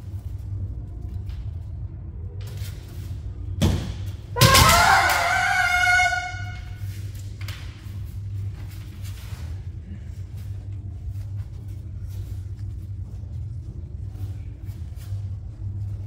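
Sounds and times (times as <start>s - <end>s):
woman's high shout: 4.4s - 6.6s.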